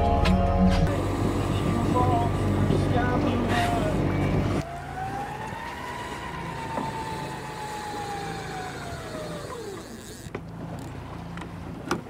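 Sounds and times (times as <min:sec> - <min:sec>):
low engine hum: 0:00.0 - 0:12.0
electric winch motor whining: 0:00.9 - 0:10.9.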